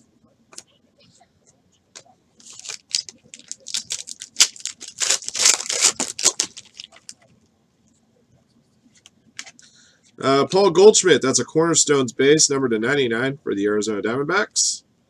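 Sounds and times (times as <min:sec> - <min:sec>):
foil wrapper tearing and crinkling: 0:02.4 - 0:07.2.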